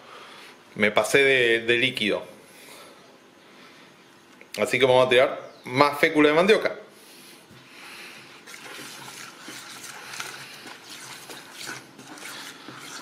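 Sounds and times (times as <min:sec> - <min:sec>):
spoon stirring wet batter: 0:08.3 - 0:13.0.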